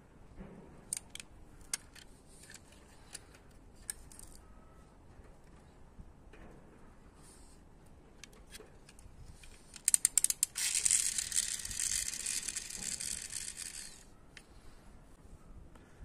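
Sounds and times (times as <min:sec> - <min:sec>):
spring motor ratcheting clicks: 0:08.2 - 0:14.1
high whirr of spinning wheels: 0:10.4 - 0:14.1.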